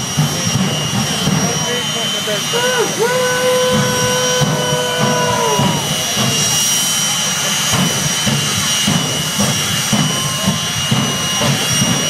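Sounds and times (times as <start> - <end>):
jet engines roaring with high whine: 0.0 - 12.0
person cheering: 2.5 - 6.1.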